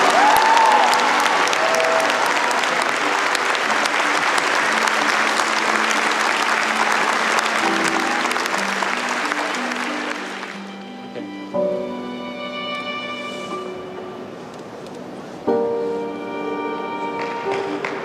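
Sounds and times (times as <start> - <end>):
crowd applauding: 0.0 - 11.2, 17.0 - 18.0
slow music with held notes: 2.8 - 18.0.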